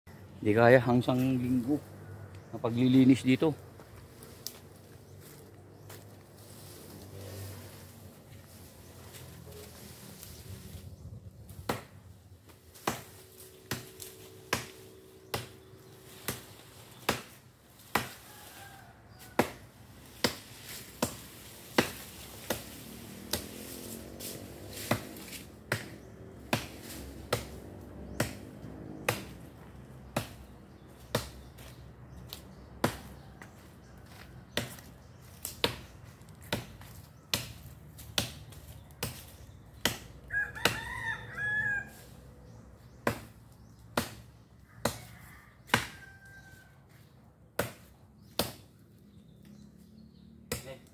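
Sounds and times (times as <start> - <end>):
blade striking tree trunk: 11.5 - 18.3, 19.1 - 33.6, 34.5 - 41.1, 42.8 - 46.1, 47.6 - 48.8, 50.4 - 50.9.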